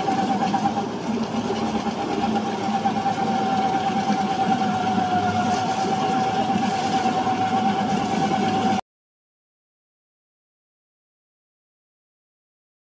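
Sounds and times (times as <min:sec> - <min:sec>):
machine engine running: 0:00.0 - 0:08.8
steady whine: 0:00.0 - 0:08.8.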